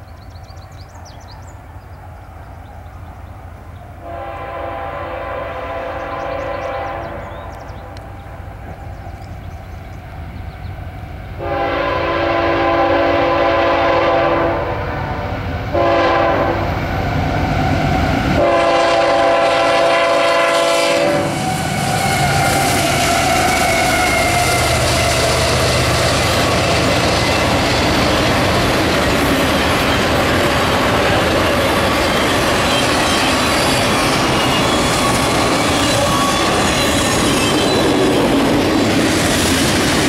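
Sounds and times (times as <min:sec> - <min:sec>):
train rumbling: 0:00.0 - 0:40.0
locomotive air horn blasts: 0:04.0 - 0:07.3, 0:11.4 - 0:16.7, 0:18.4 - 0:26.0.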